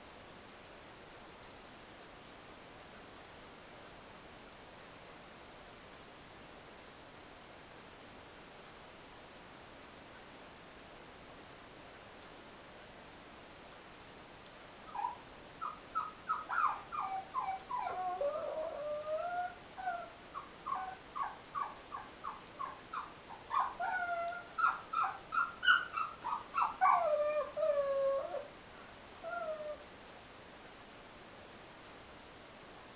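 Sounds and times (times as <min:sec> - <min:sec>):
small dog yapping and howling: 0:14.9 - 0:28.5, 0:29.2 - 0:29.8.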